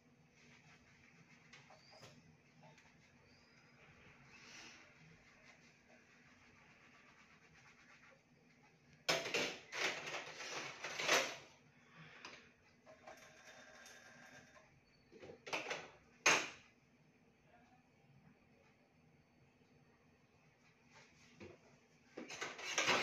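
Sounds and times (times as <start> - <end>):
dishes and utensils clattering: 22.2 - 23.0.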